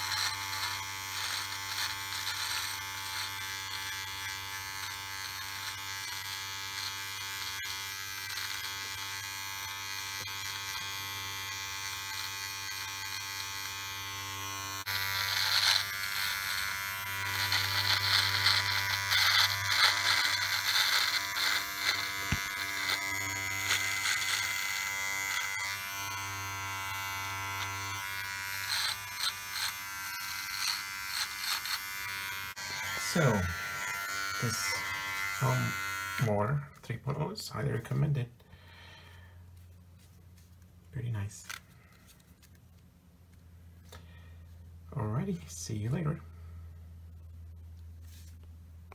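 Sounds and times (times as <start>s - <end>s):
beard trimmer buzzing: 0.0s - 36.7s
blade crackling through beard: 0.0s - 38.2s.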